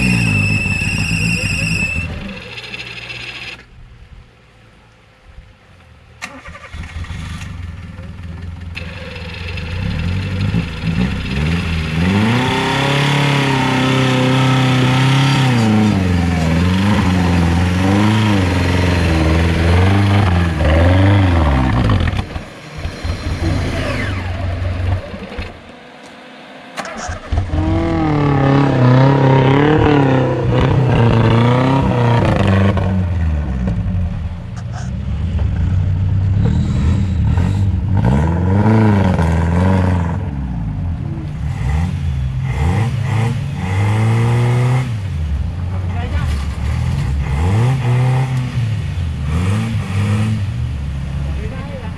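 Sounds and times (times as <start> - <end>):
off-road vehicle engine revving: 0.0 - 3.7, 6.2 - 51.9.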